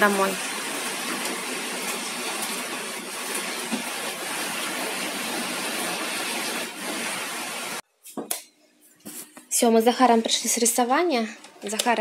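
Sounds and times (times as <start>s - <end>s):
torrential rain pouring: 0.0s - 7.8s.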